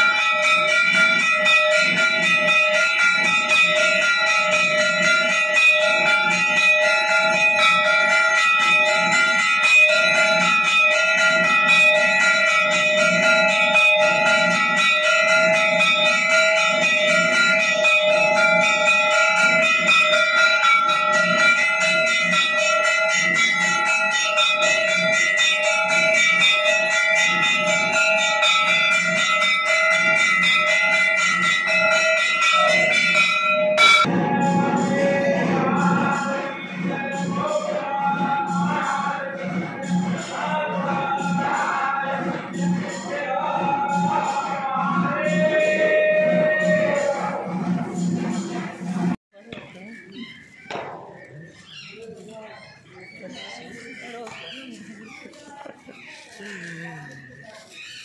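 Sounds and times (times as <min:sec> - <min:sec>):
temple bells ringing: 0:00.0 - 0:58.0.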